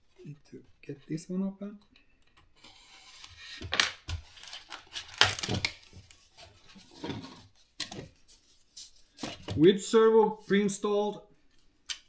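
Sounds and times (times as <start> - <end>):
plastic packaging rustling: 4.1 - 8.2.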